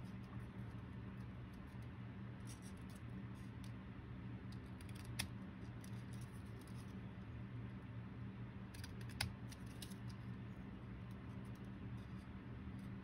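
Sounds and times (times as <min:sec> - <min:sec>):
faint low hum: 0:00.0 - 0:13.0
scissors snipping paper: 0:04.5 - 0:06.8, 0:08.7 - 0:10.2.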